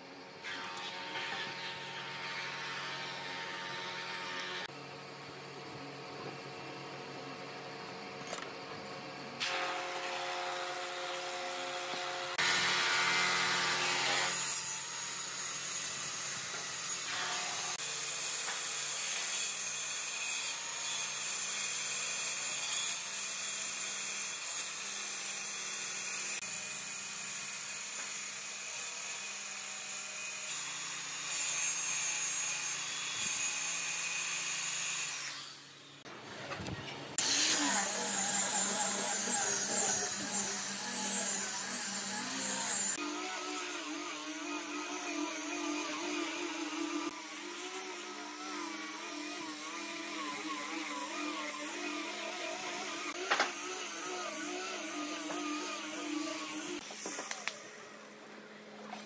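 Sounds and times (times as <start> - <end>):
circular saw cutting wood: 0.4 - 4.8, 9.4 - 36.1, 37.1 - 58.2
angle grinder sanding: 37.2 - 57.8.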